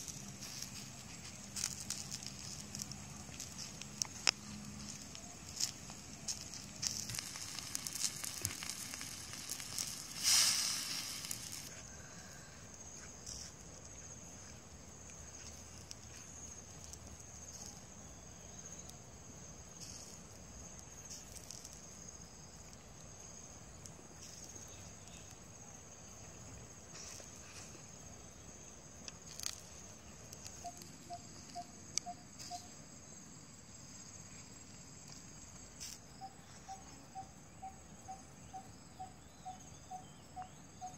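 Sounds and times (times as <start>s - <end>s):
handling clicks and rustles: 0.0s - 11.7s
insects chirping: 0.0s - 40.9s
quick soft pips: 0.4s - 11.7s.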